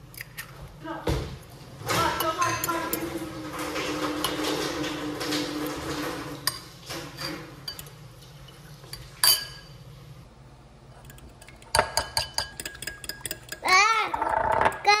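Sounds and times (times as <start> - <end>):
fork clinking against glass bowl: 8.9 - 9.8, 11.1 - 13.7.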